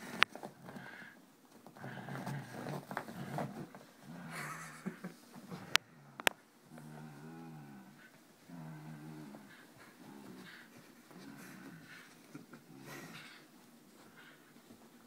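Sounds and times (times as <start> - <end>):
dog growling: 1.8 - 4.8, 5.5 - 13.5.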